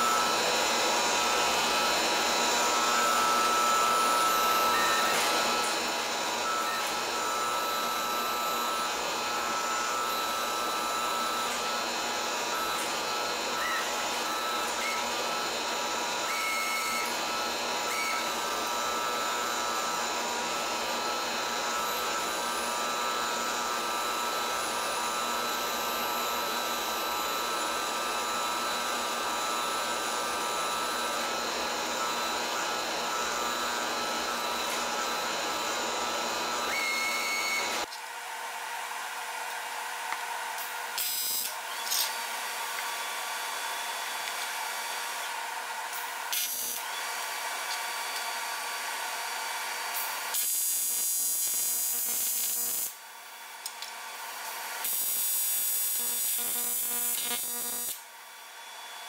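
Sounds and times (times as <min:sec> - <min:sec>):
electric motor whirring drone: 0:00.0 - 0:37.9, 0:54.4 - 0:58.0.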